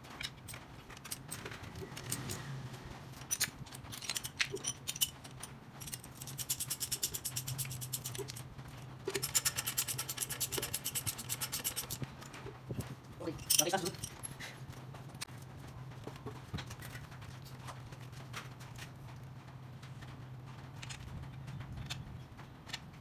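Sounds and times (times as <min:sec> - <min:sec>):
ratchet wrench clicking: 0:05.8 - 0:08.4, 0:09.1 - 0:12.0.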